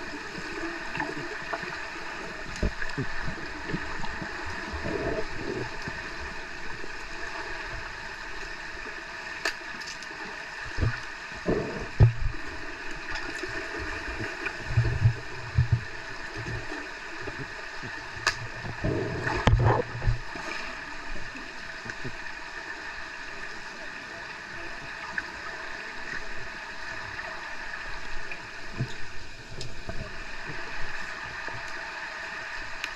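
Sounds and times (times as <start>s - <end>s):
bubbles: 0.0s - 6.8s, 10.6s - 20.7s
muffled underwater hiss: 0.0s - 32.9s
fin kicks thumping and churning: 10.7s - 20.3s.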